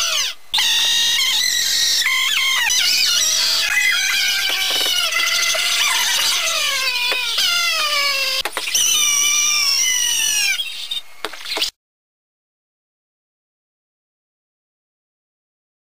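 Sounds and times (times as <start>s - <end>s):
high wobbling wailing voices: 0.0s - 11.1s.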